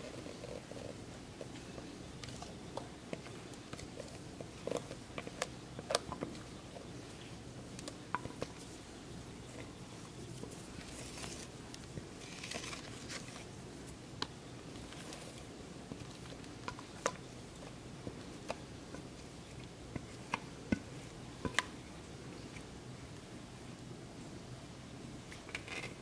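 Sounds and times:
spatula scraping soft mixture: 0:00.0 - 0:14.0, 0:14.6 - 0:21.8
spatula tapping bowl: 0:08.1 - 0:08.5.

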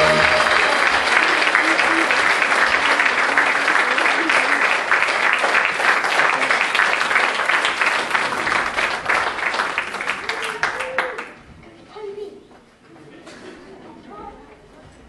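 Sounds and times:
crowd voices: 0:00.0 - 0:04.8
audience applauding: 0:00.0 - 0:11.4.

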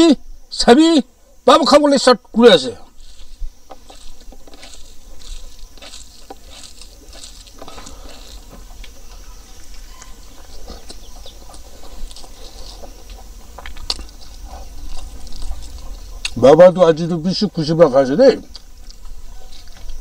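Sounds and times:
chewing and lip smacking: 0:09.7 - 0:16.4.

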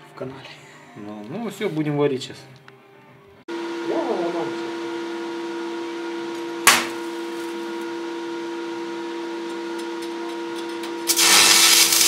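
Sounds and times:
welding machine humming: 0:03.5 - 0:12.0
welding arc crackling hiss: 0:10.6 - 0:12.0
electrode sharp crack: 0:11.0 - 0:12.0.

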